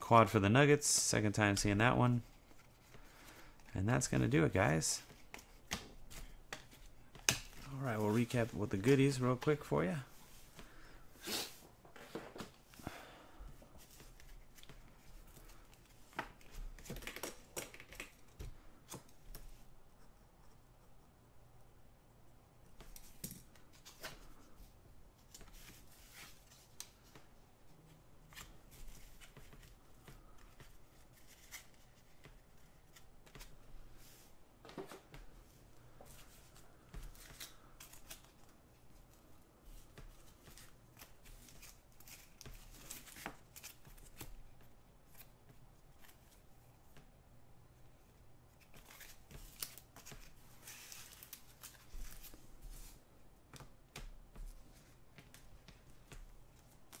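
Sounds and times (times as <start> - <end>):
cards rustling and tapping: 0.9 - 9.7, 13.8 - 19.5, 28.3 - 33.6, 34.6 - 47.1, 48.5 - 57.0.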